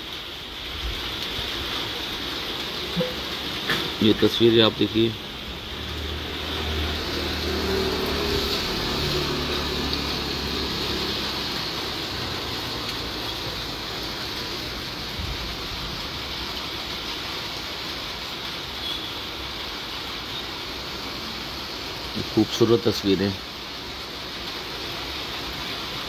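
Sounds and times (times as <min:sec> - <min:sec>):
rain hissing: 0:00.0 - 0:26.0.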